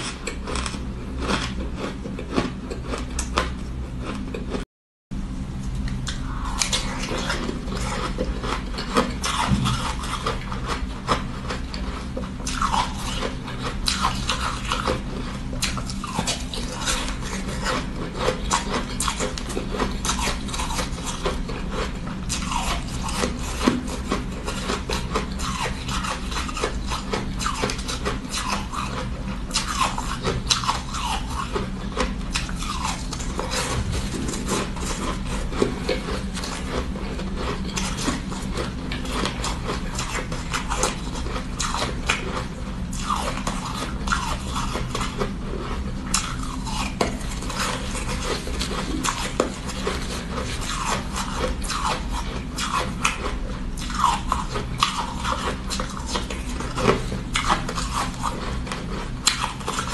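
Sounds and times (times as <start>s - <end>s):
crunching and chewing ice: 0.0s - 4.6s, 6.0s - 59.9s
steady low hum: 0.0s - 59.9s.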